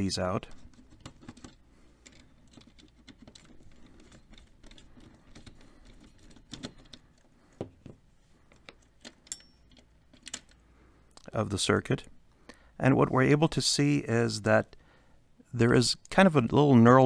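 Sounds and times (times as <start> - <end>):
small metallic clicks: 8.5 - 11.3.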